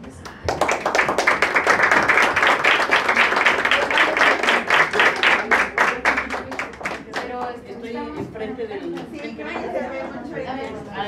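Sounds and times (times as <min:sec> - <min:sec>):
people applauding: 0:00.0 - 0:07.8.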